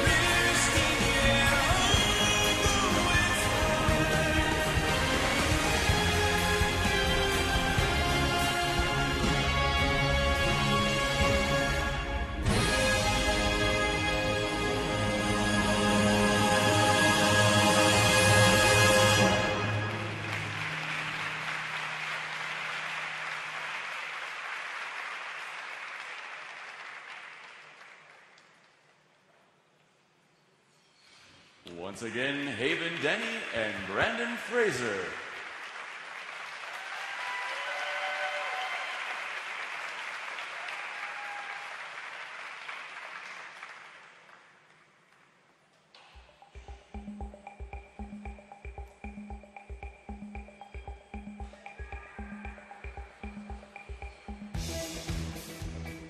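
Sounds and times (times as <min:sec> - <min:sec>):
audience applauding: 0:19.2 - 0:28.9, 0:32.7 - 0:45.3.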